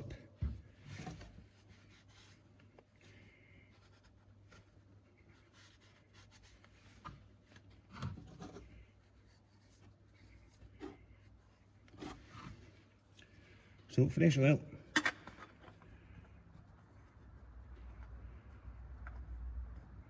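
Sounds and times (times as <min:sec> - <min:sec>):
cloth rag rubbing: 0:01.2 - 0:02.9, 0:03.7 - 0:07.4, 0:08.6 - 0:12.9.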